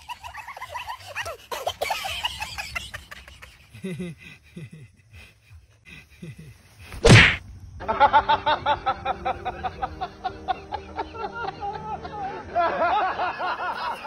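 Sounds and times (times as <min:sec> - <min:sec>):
loud sharp slap: 0:06.9 - 0:07.4.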